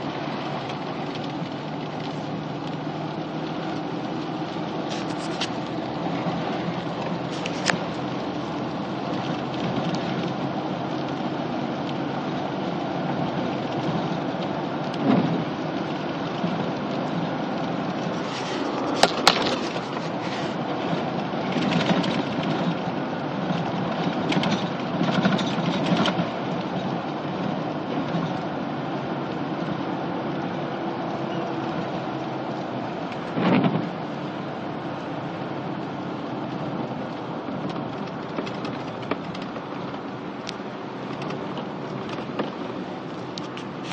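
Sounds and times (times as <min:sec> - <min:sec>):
rain and wet tyres hissing: 0:00.0 - 0:43.9.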